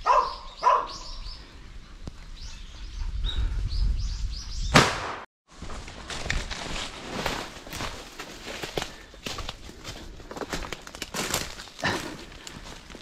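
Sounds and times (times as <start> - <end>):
dog barking: 0.0 - 1.1.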